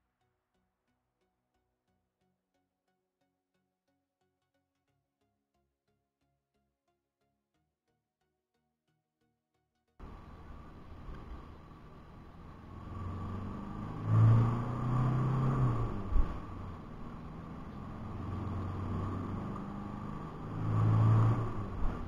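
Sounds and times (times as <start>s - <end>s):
diesel engine accelerating: 10.0s - 22.0s.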